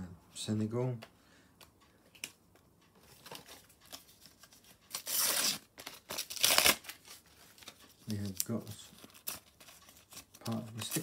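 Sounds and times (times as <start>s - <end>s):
paper wrapper rustling: 3.0s - 11.0s
paper wrapper ripping: 4.9s - 11.0s.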